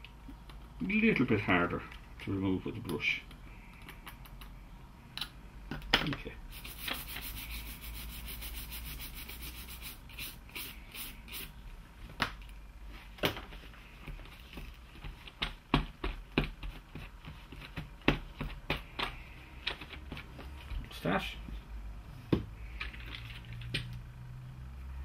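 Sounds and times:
brush scrubbing circuit board: 6.5s - 11.5s
cloth rubbing board: 6.6s - 10.6s.

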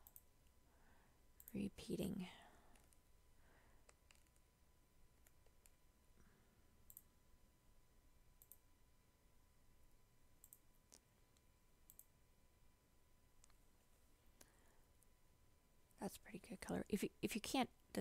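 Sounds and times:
computer mouse clicks: 0.0s - 0.6s, 2.7s - 3.0s, 3.8s - 4.5s, 5.2s - 5.8s, 6.8s - 7.1s, 8.4s - 8.6s, 10.4s - 12.1s.

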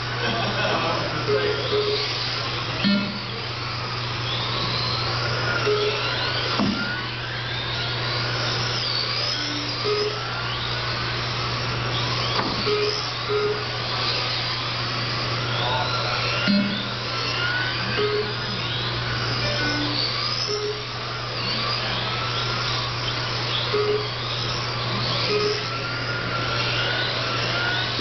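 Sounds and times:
electric toy car motors whining: 0.0s - 28.0s
steady low hum: 0.0s - 28.0s
short electronic beeps: 1.2s - 2.2s, 2.8s - 3.4s, 5.6s - 7.7s, 8.7s - 10.6s, 12.2s - 13.7s, 15.5s - 21.0s, 23.5s - 24.4s, 25.1s - 25.8s.

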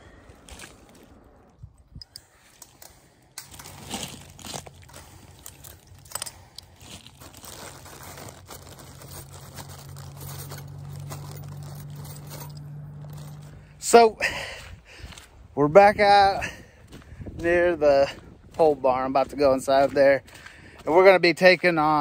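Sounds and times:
low steady hum: 0.0s - 15.8s
gravel and dry leaves crunching: 0.0s - 22.0s.

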